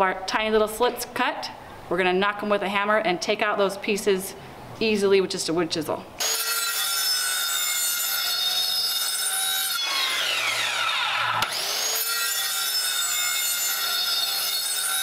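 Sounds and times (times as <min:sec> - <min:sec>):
circular saw cutting wood: 0:06.2 - 0:15.0.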